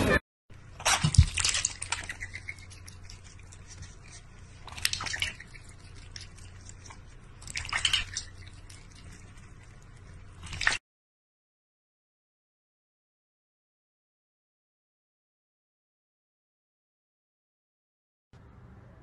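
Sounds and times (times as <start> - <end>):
cat lapping water: 0.7 - 10.8
water splashing in metal bowl: 0.8 - 10.8.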